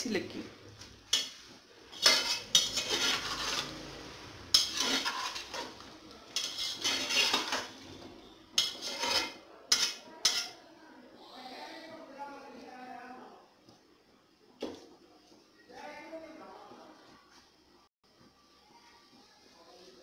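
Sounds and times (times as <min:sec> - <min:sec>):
metal spoon scraping a pot: 0:01.1 - 0:10.6.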